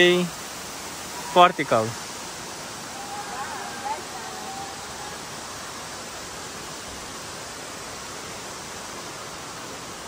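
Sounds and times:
indoor waterfall rushing: 0.0 - 10.0.

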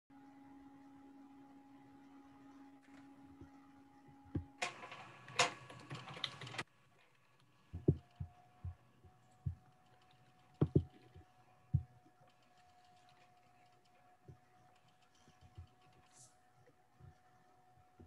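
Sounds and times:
computer keyboard typing: 4.6 - 6.7.

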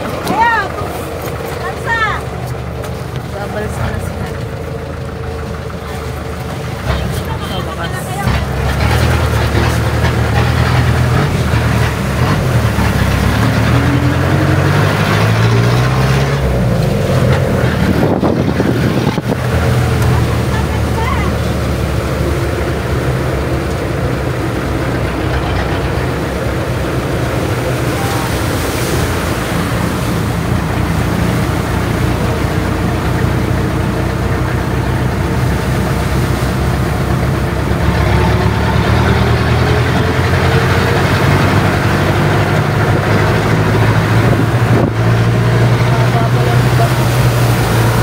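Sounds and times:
vehicle engine running: 0.0 - 48.0.

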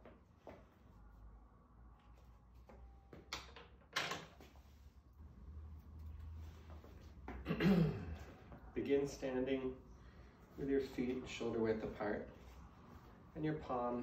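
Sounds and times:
clicks and knocks in a room: 2.0 - 4.6.

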